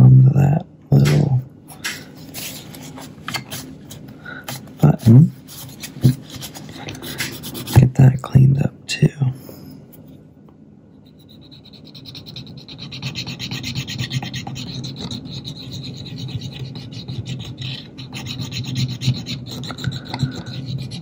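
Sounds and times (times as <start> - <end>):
rubbing on plastic camera body: 2.2 - 7.8, 11.1 - 21.0.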